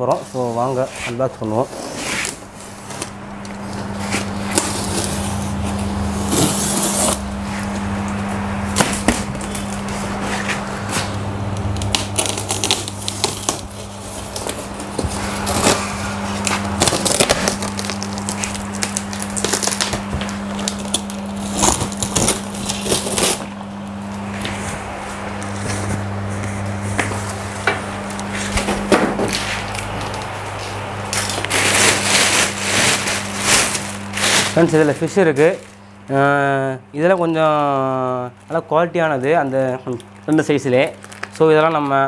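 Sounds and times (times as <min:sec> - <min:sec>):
steady low hum: 0:00.0 - 0:42.0
box cutter scraping tape and foam: 0:00.1 - 0:03.1, 0:03.8 - 0:07.7, 0:11.9 - 0:23.5.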